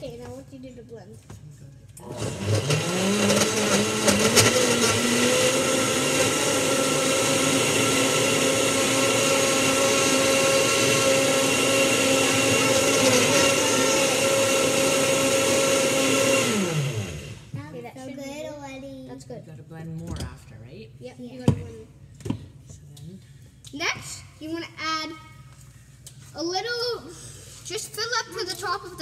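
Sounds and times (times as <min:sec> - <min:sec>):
blender motor running: 0:02.0 - 0:17.5.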